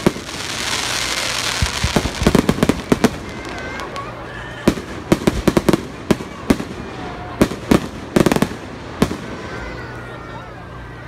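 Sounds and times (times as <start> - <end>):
firework shells bursting: 0.0 - 4.1.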